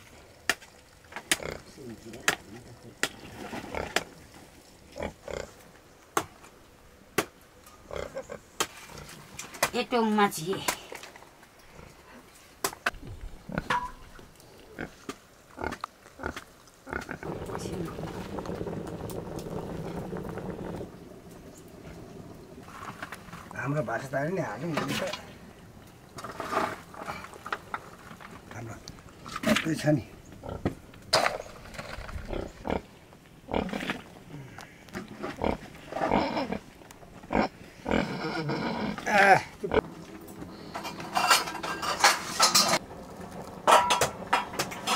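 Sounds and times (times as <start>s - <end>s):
pig grunting: 33.5s - 36.6s, 37.3s - 39.8s.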